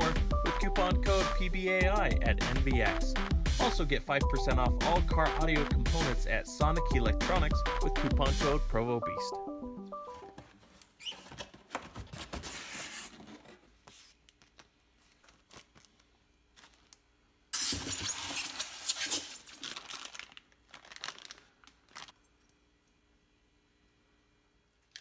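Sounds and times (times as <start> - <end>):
plastic bags crinkling: 15.0 - 22.4.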